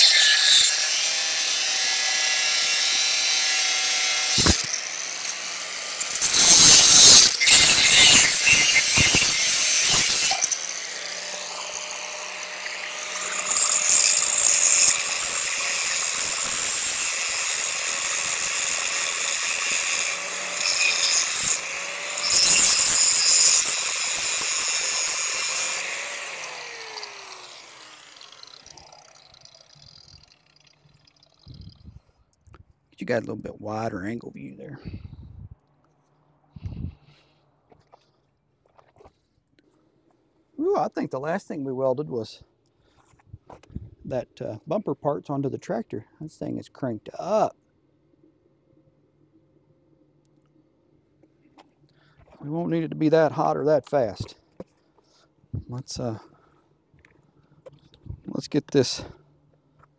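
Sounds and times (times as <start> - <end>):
power tool cutting steel: 0.0 - 31.6.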